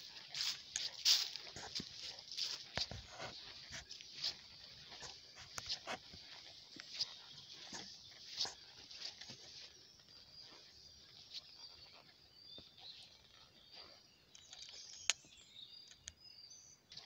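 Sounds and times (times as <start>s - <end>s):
footsteps crunching on leaves: 0.0s - 12.1s
small birds chirping: 0.0s - 17.0s.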